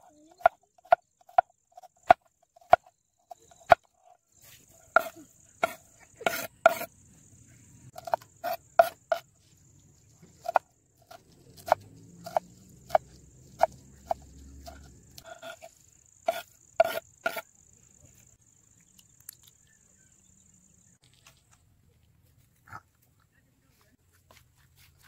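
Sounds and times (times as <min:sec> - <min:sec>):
knife chopping on wooden board: 0:00.4 - 0:03.9, 0:05.0 - 0:06.9, 0:08.0 - 0:09.2, 0:10.4 - 0:15.7, 0:16.3 - 0:17.4
knife scraping board: 0:04.9 - 0:06.9, 0:08.0 - 0:09.2, 0:10.4 - 0:13.0, 0:13.6 - 0:15.7, 0:16.3 - 0:17.4.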